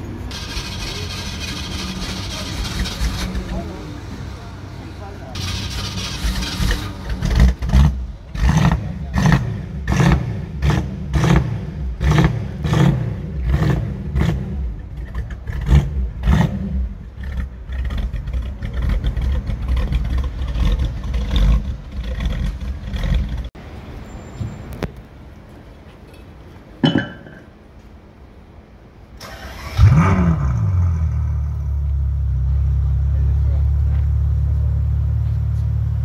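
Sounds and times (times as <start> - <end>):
engine idling: 0.0 - 9.2, 13.4 - 23.6
car engine revving: 0.0 - 23.6, 29.2 - 36.0.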